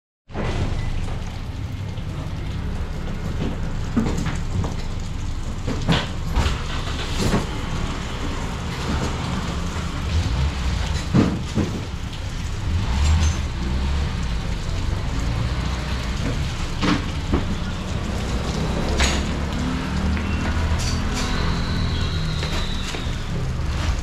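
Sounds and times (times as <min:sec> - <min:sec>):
street traffic rumble: 0:00.3 - 0:24.0
sharp knocks and clatters: 0:03.0 - 0:09.9, 0:10.7 - 0:13.8, 0:15.6 - 0:21.6.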